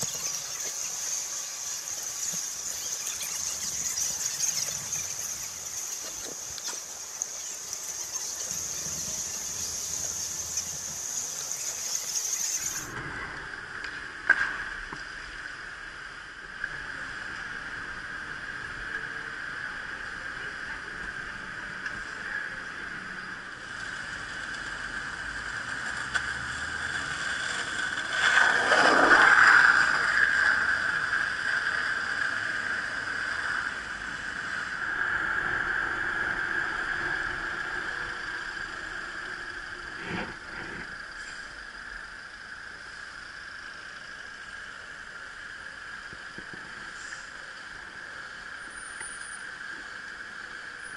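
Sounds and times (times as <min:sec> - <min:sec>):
road noise: 0:00.0 - 0:50.9
wind rush: 0:33.7 - 0:41.0.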